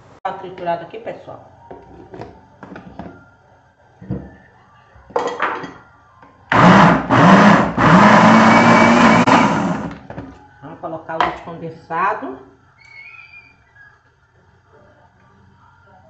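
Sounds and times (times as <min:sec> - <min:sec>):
blender motor whine: 0:06.5 - 0:10.0.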